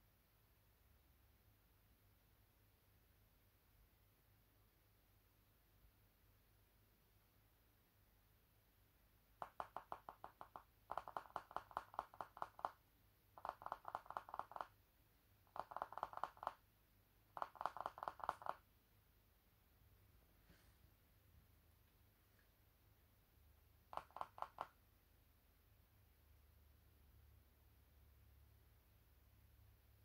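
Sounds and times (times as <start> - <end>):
squirrel rapid clicking: 9.4 - 14.8, 15.4 - 16.7, 17.3 - 18.7, 23.8 - 24.8.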